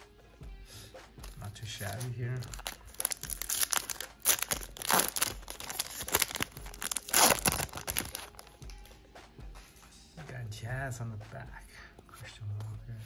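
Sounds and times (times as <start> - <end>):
crinkling rips and crackles: 1.8 - 8.5
foil wrapper tearing: 2.4 - 8.4.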